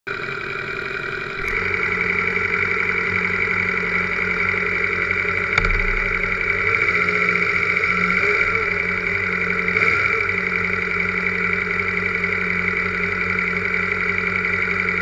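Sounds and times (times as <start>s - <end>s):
motorcycle engine idling: 0.1s - 15.0s
knock: 5.6s - 6.8s.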